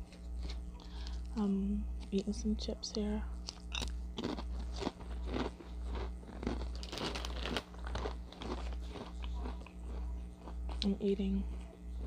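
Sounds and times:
person chewing crisp chips: 3.4 - 12.0.

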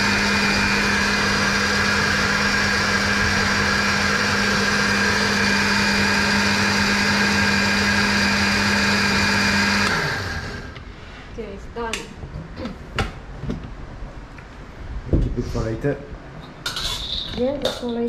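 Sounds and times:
electric blender running: 0.0 - 10.8.

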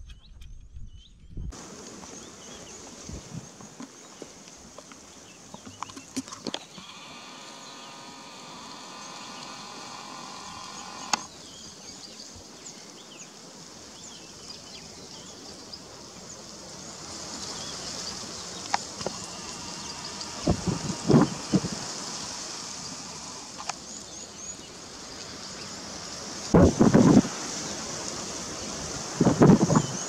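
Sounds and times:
steady buzzing tone: 6.7 - 11.3, 17.8 - 24.0.

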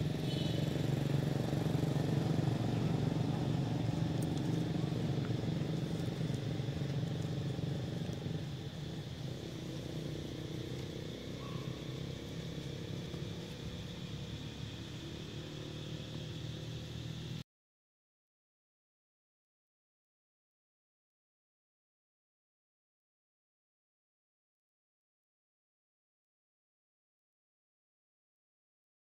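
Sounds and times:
low motor drone: 0.0 - 17.4
faint high chirp: 0.2 - 0.6, 11.4 - 12.0.

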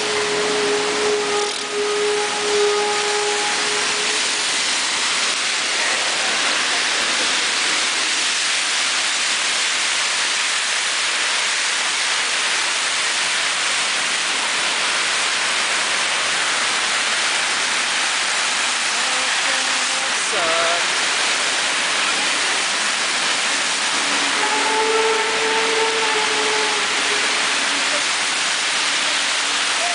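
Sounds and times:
heavy rain pouring: 0.0 - 29.9
cars splashing through water: 17.6 - 24.3.

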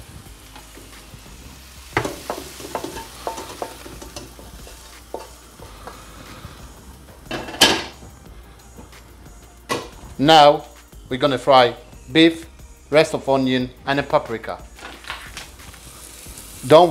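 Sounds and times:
mushrooms sizzling in a frying pan: 0.0 - 16.9
spatula knocking on pan: 1.9 - 6.0.

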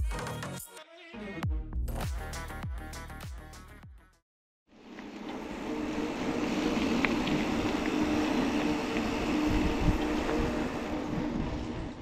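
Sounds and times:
bike tyre and wind noise: 4.8 - 12.0.

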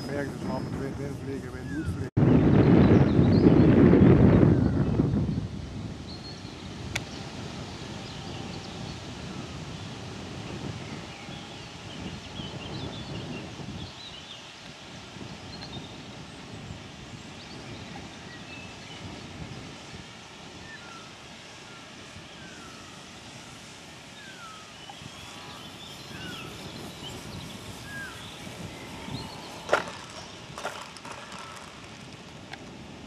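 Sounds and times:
birds chirping: 0.0 - 3.7, 20.5 - 32.5
wind rumble on microphone: 0.0 - 33.0
plane wheels knocking on ground: 28.5 - 32.7.

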